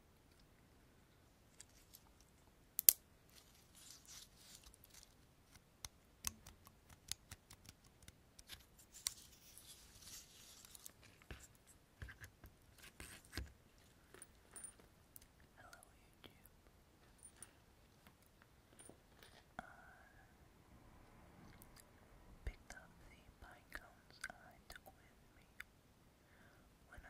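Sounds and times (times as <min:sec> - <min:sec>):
pinecones clicking and crackling: 0:02.8 - 0:09.3
dry rustling: 0:03.3 - 0:05.2.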